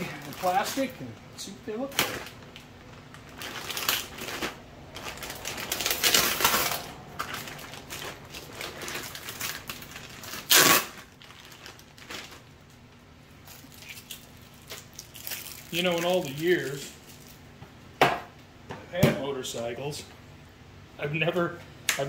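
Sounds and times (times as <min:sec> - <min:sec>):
plastic packaging crinkling: 0:00.0 - 0:00.9, 0:01.8 - 0:17.5
sharp loud plastic crackle: 0:01.8 - 0:12.6, 0:13.4 - 0:17.4.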